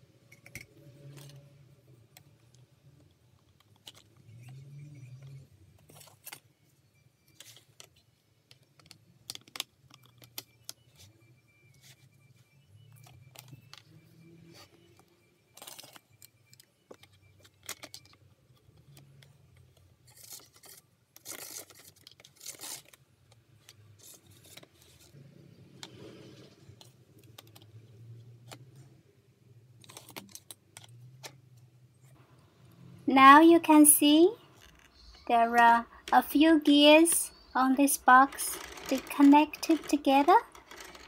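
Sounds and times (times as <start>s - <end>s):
plastic parts rubbing scrapes: 14.4s - 23.0s, 23.6s - 27.7s, 34.5s - 41.0s
plastic toy gears clicking: 34.6s - 41.0s.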